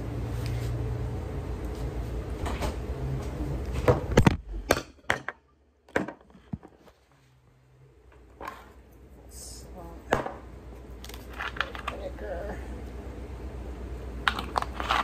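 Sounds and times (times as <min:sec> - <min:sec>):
steady low hum: 0:00.0 - 0:15.0
household knocks and clunks: 0:03.8 - 0:06.9.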